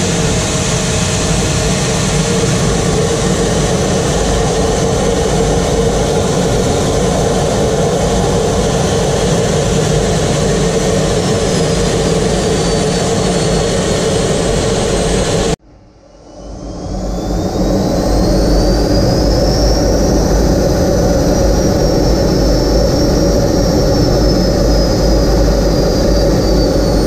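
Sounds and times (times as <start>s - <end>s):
faint falling whine: 0.0s - 27.0s
jet engine roar in cockpit: 0.0s - 27.0s.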